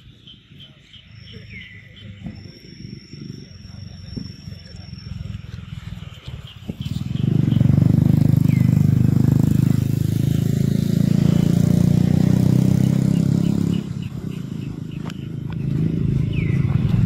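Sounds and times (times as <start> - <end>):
faint bird chirps: 0.0 - 8.8.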